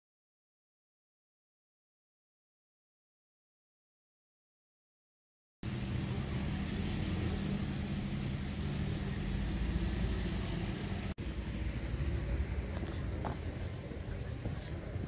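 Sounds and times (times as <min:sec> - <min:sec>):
low rumbling background noise: 0:05.6 - 0:15.0.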